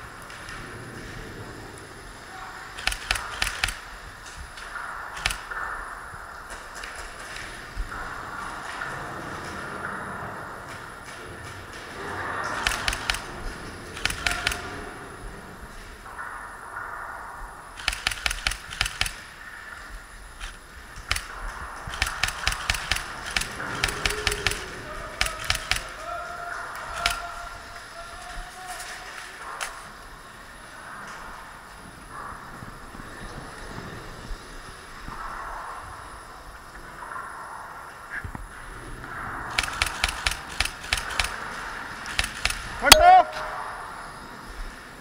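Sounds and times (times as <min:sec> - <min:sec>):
steady background noise: 0:00.0 - 0:45.0
airsoft gunshots: 0:02.8 - 0:04.0, 0:05.0 - 0:05.8, 0:12.0 - 0:15.0, 0:17.8 - 0:19.4, 0:21.0 - 0:26.0, 0:39.5 - 0:43.6.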